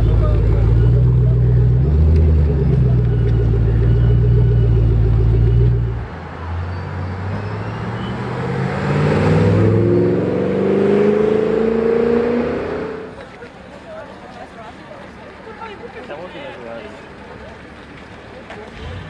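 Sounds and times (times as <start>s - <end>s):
car engine idling: 0.0s - 6.1s
car engine revving: 7.0s - 13.2s.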